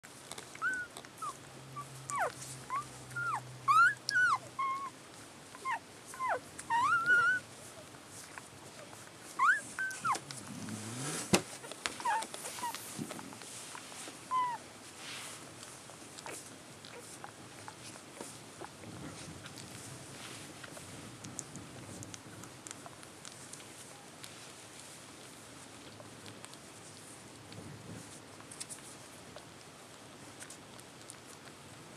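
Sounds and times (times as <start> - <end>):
puppies squeaking and whimpering: 0.3 - 5.0, 5.6 - 7.8, 8.8 - 10.3, 11.6 - 12.8, 14.3 - 14.6.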